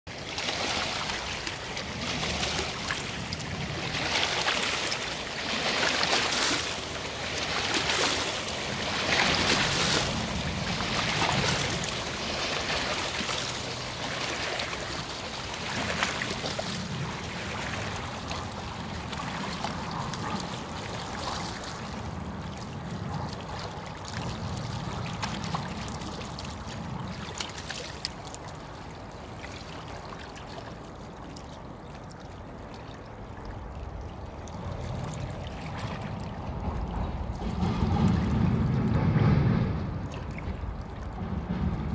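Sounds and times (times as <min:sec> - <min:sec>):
waves lapping and splashing: 0:00.1 - 0:41.9
low steady rumble: 0:32.4 - 0:41.9.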